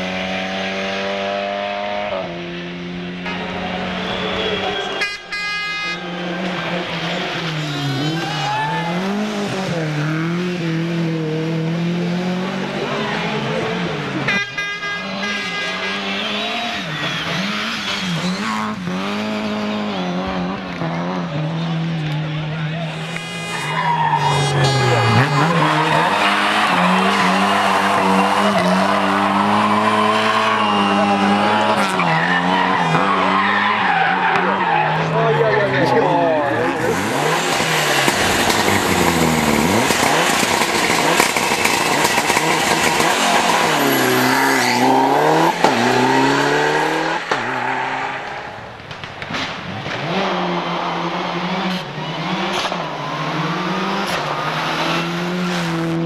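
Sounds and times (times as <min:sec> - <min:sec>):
car engine revving high: 0:00.0 - 0:04.9, 0:06.0 - 0:48.7, 0:49.8 - 0:56.0
tyres squealing: 0:23.0 - 0:48.6
rally car engine running hard: 0:36.5 - 0:47.4.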